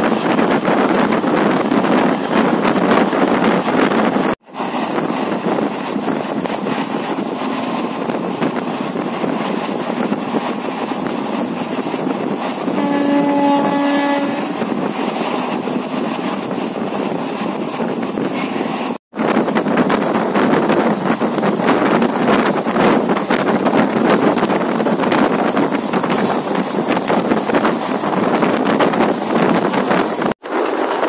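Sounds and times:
train rolling: 0.0s - 31.0s
wind on microphone: 0.0s - 31.0s
train horn: 12.7s - 14.7s.

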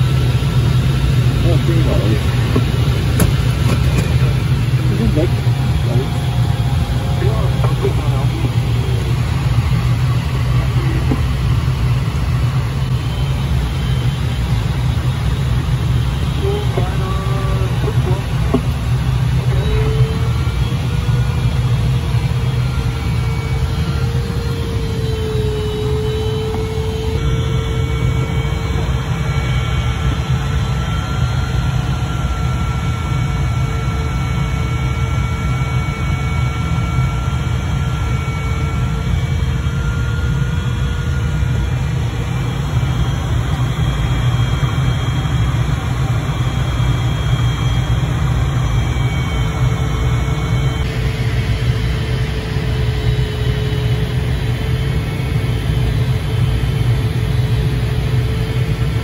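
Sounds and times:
cockpit airflow rumble: 0.0s - 59.0s.

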